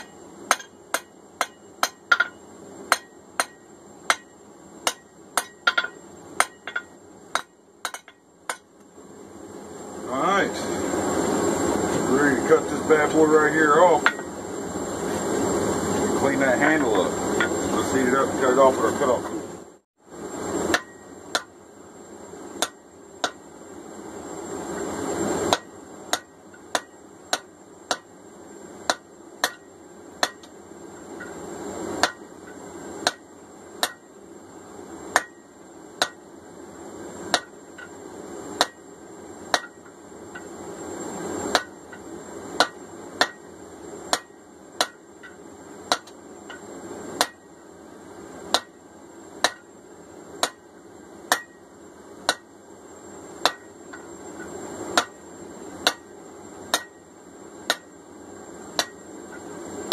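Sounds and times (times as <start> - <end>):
hammer striking hot steel: 0.0 - 8.9, 12.5 - 14.4, 15.9 - 19.4, 20.6 - 21.6, 22.5 - 23.4, 25.4 - 28.2, 28.8 - 31.4, 32.0 - 34.2, 35.1 - 36.3, 37.2 - 38.0, 38.6 - 38.9, 39.5 - 40.5, 41.4 - 47.5, 48.5 - 48.8, 49.4 - 49.8, 50.4 - 50.7, 51.3 - 52.5, 53.4 - 55.2, 55.8 - 58.0, 58.7 - 59.9.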